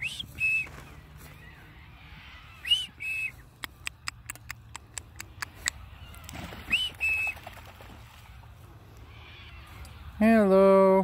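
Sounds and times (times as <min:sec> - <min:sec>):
sharp clicks: 0:03.6 - 0:06.4.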